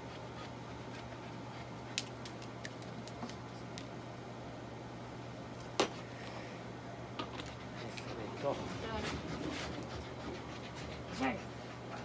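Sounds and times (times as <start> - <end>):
low hum of room equipment: 0.0 - 12.0.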